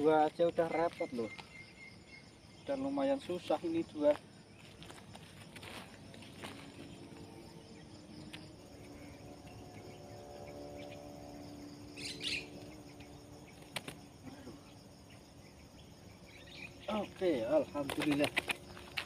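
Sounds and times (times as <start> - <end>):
faint steady hum: 3.8 - 17.5
bird wings fluttering: 13.5 - 14.1, 17.7 - 19.0.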